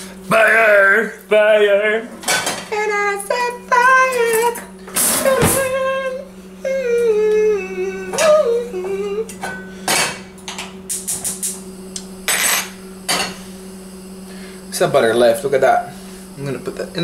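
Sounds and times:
man humming a tune: 3.6 - 9.5.

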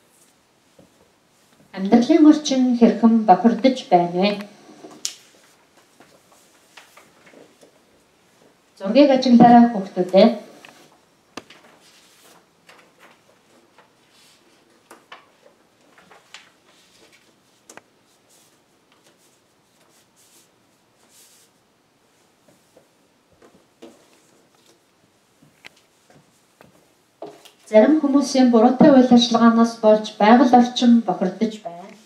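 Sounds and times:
paper cards rustling: 10.7 - 20.5.

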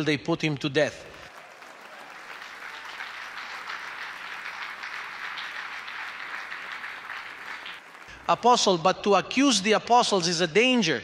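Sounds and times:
congregation applauding: 1.0 - 8.4.

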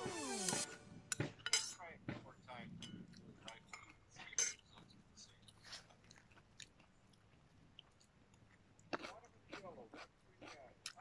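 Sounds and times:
person chewing and crunching food: 4.6 - 11.0.

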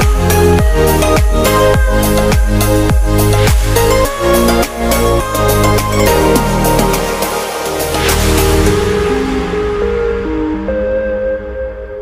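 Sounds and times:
kick drum beat: 0.0 - 3.9
electronic music: 0.0 - 12.0.

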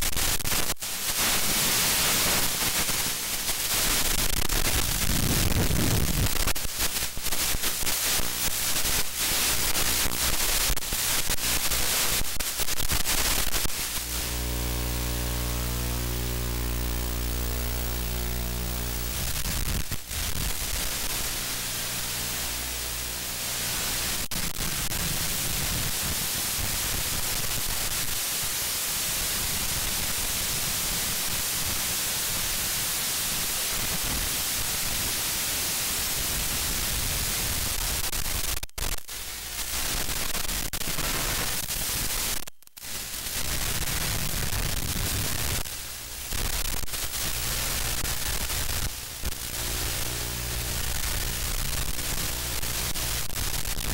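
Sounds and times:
static hiss: 0.0 - 53.9.

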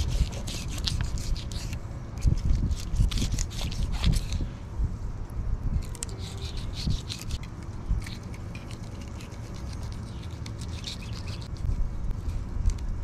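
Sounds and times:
knife scraping through fish scales: 0.0 - 1.8, 2.5 - 4.4, 5.8 - 7.4, 8.0 - 11.6.

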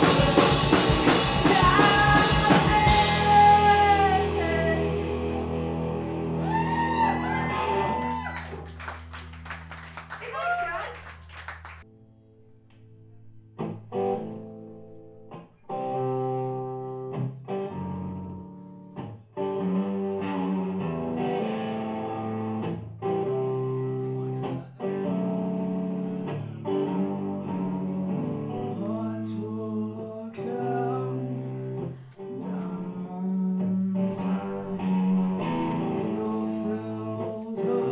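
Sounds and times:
electric guitar notes: 0.0 - 9.4, 11.9 - 37.9
rock band playing: 0.0 - 9.9, 15.7 - 28.6.

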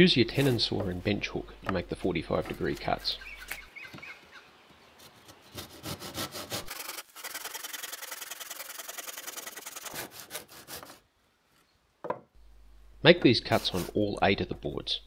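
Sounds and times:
hand saw cutting wood: 5.0 - 11.0, 13.4 - 14.0.

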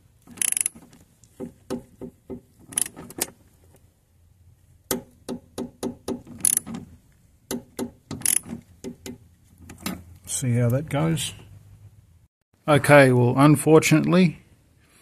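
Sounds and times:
ratchet wrench clicking: 0.4 - 0.7, 2.7 - 3.0, 6.4 - 6.6, 7.5 - 8.5.

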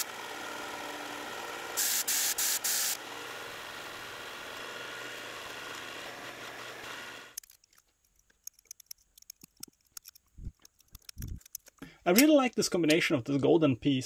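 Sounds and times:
sharpener motor hum: 0.0 - 7.4
blade grinding hiss: 1.8 - 3.0
short loud hissing bursts: 1.8 - 3.0.

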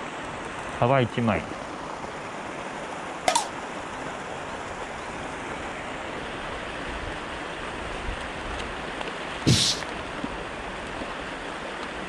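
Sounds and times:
fountain water splashing: 0.0 - 12.0
sharp click: 3.3 - 3.5.

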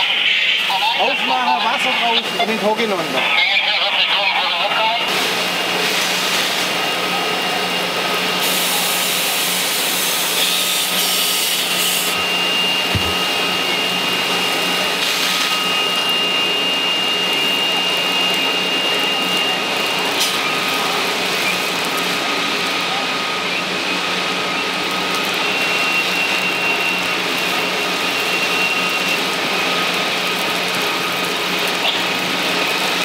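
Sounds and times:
hose jet spraying water: 5.0 - 6.8, 8.4 - 22.4
mechanical hum: 5.0 - 33.0
thin whine: 10.2 - 22.4.

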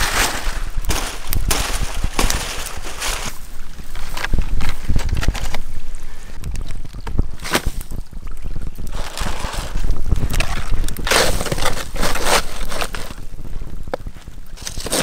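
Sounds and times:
dry rustling of leaf bundles: 0.0 - 6.8, 8.9 - 13.6
wind rumbling on microphone: 0.0 - 15.0.

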